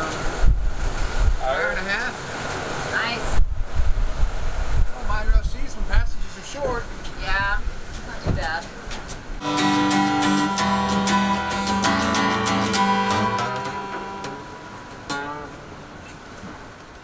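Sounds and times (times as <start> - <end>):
acoustic guitar picked notes: 9.4 - 16.7.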